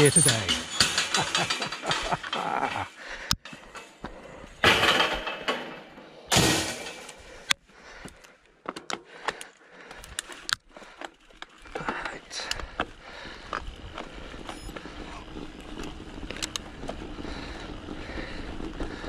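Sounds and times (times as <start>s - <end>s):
metal gate clanking: 0.0s - 2.6s, 4.6s - 7.2s
bike clicking and rattling: 0.0s - 19.0s.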